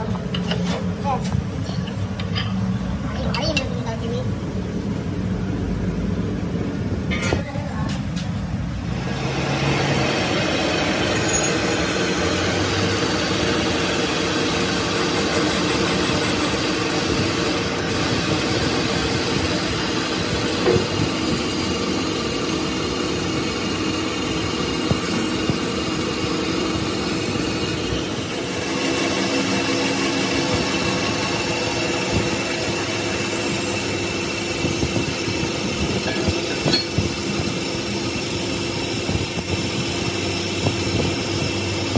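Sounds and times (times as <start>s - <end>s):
lathe machine whir: 8.8s - 41.9s
grinding wheel hiss: 9.0s - 41.9s.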